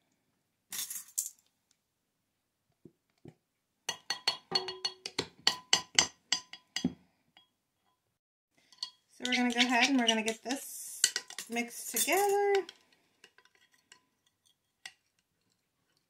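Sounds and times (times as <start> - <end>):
spoon tapping ceramic dish: 3.9 - 7.5.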